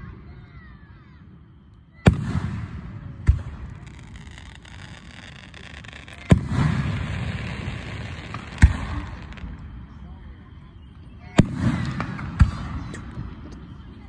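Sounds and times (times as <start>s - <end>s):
firework shells booming: 2.0s - 10.0s, 11.3s - 13.8s.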